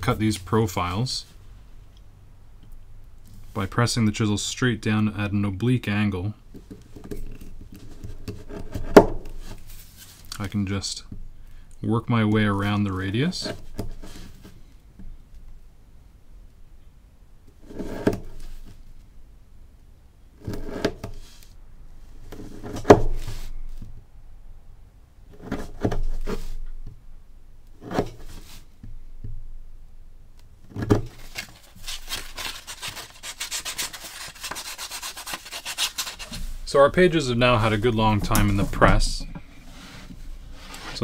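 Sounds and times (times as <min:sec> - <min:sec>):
rapid rubbing of board edge: 0:31.3 - 0:36.7.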